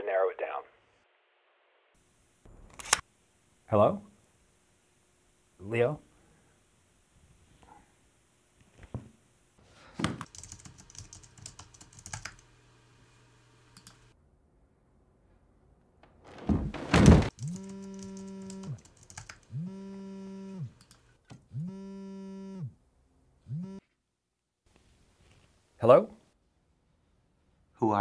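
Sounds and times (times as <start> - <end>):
computer keys clattering: 10.2 - 12.4, 17.3 - 19.5
loud thump: 16.3 - 17.4
smartphone vibrating on desk: 17.4 - 18.8, 19.5 - 20.8, 21.5 - 22.8, 23.5 - 23.8.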